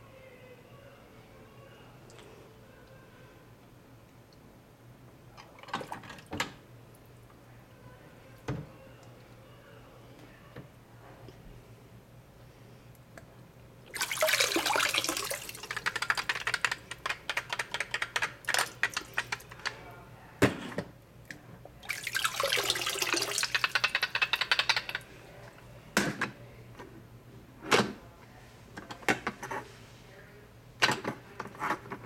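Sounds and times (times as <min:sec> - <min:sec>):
spattering drips: 0:13.9 - 0:16.8, 0:18.4 - 0:19.5, 0:21.9 - 0:25.0
water splashing in a sink: 0:13.9 - 0:19.6, 0:21.8 - 0:25.0.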